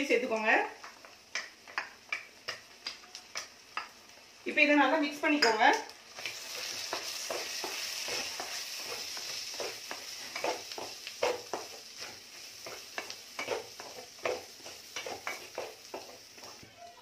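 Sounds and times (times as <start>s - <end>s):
food sizzling in a pan: 0.0s - 17.0s
wooden spatula scraping a pan: 6.4s - 16.6s.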